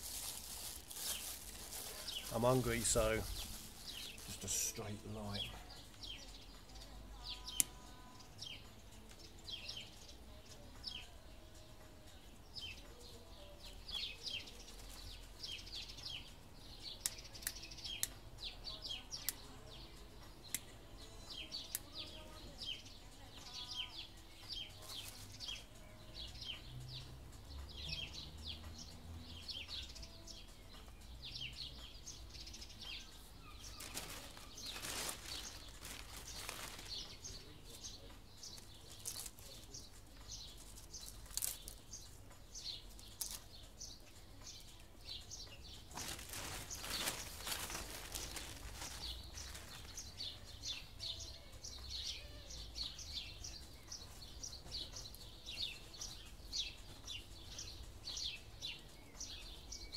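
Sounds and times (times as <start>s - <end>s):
small birds chirping: 0.0s - 59.9s
kindling sticks clicking: 17.0s - 18.2s, 37.8s - 46.3s.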